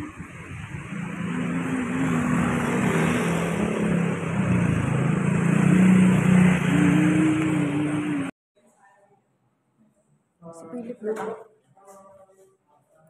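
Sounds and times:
vehicle engine humming: 0:00.0 - 0:08.3.

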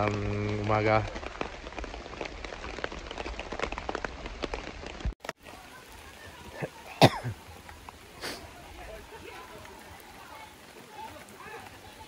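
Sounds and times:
water drops on tent fabric: 0:00.0 - 0:12.0.

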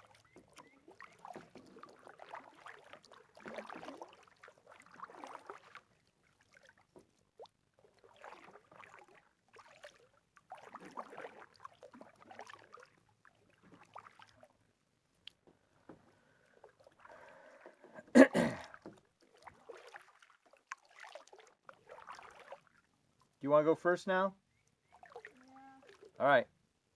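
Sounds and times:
paddle splashing in water: 0:00.0 - 0:23.4, 0:24.5 - 0:26.2
water dripping: 0:24.6 - 0:26.2.

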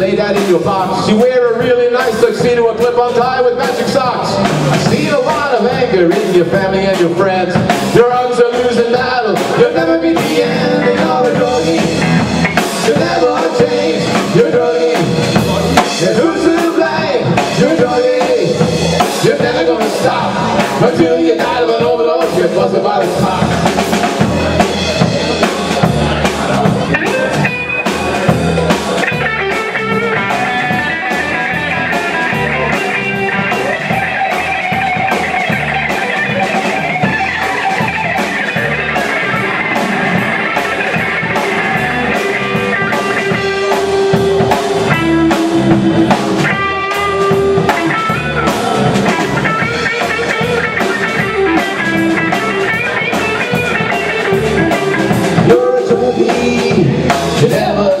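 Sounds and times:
drum kit beat: 0:00.0 - 0:58.0
electric guitars: 0:00.0 - 0:58.0.

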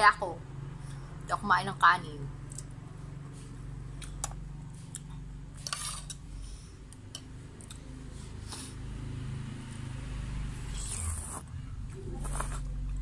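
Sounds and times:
steady low hum: 0:00.0 - 0:13.0
slurping soup: 0:10.8 - 0:11.5.

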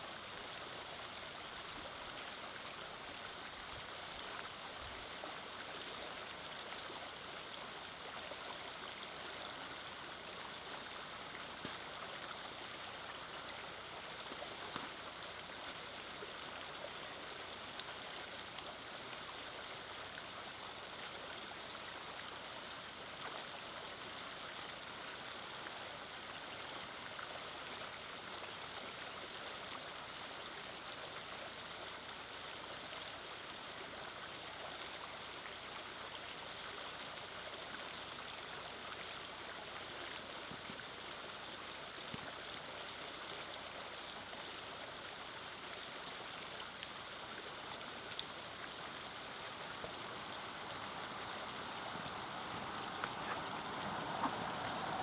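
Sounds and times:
stream rushing over stones: 0:00.0 - 0:55.0.

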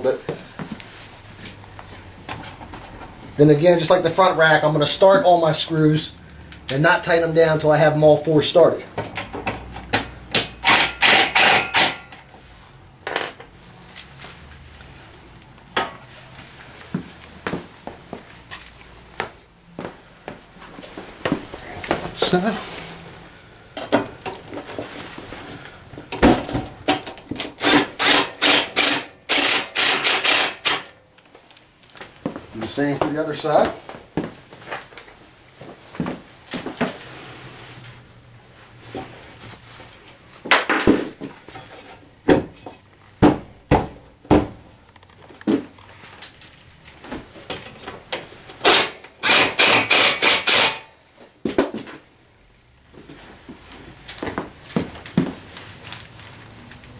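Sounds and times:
cordless drill driving screw: 0:10.6 - 0:12.0, 0:27.6 - 0:30.9, 0:48.6 - 0:50.8
socket ratchet strokes: 0:27.6 - 0:30.9.

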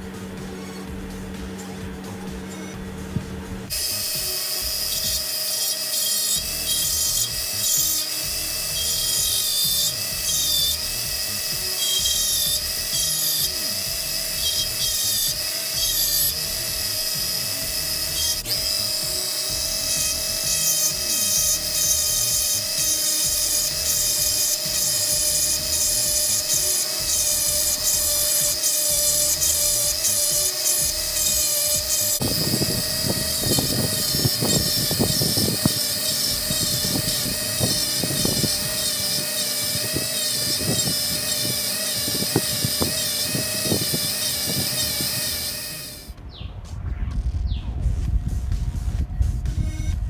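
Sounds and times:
rotary tool grinding metal: 0:00.0 - 0:46.1.

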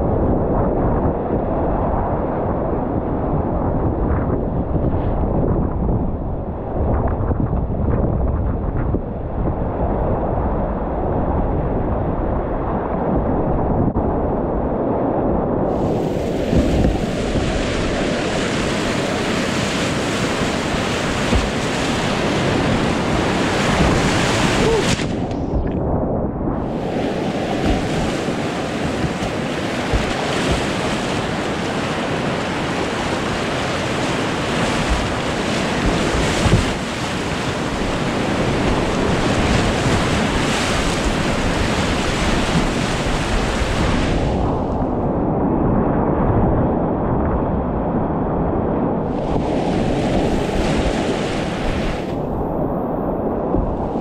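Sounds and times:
whitewater rapids rushing: 0:15.8 - 0:25.3, 0:26.6 - 0:44.1.

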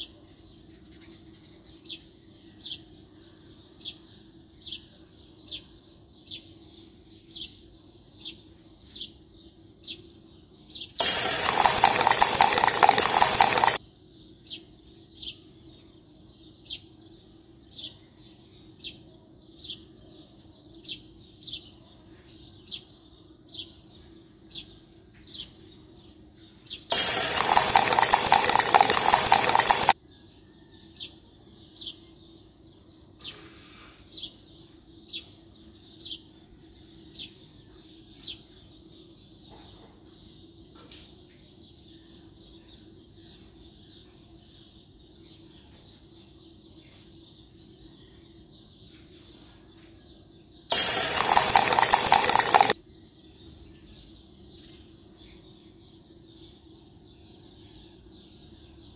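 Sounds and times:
bird chirping: 0:09.9 - 0:13.8, 0:26.4 - 0:30.0, 0:42.0 - 0:58.9.

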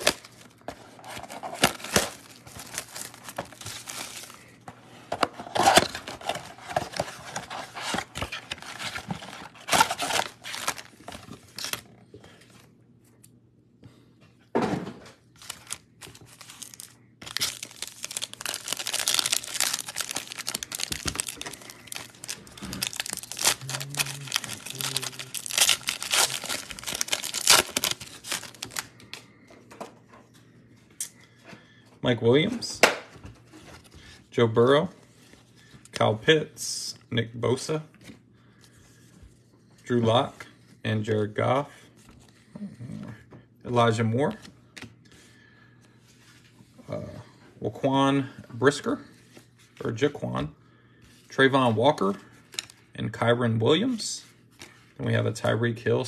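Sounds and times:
card packs crinkling and ripping: 0:00.0 - 0:12.6, 0:15.3 - 0:29.2, 0:51.9 - 0:52.9
cardboard box tearing: 0:17.3 - 0:28.8.

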